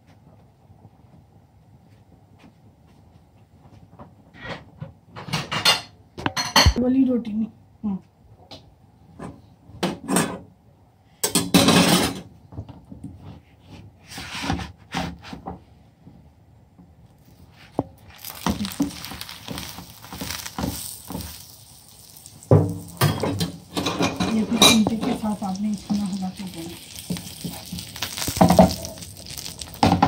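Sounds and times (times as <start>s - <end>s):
ghee sizzling: 17.2s - 30.0s.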